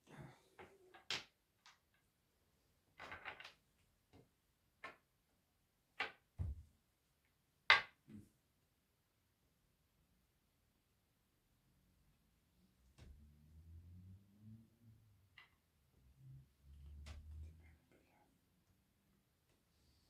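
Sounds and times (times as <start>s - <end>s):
chess pieces clicking on board: 3.0s - 3.6s.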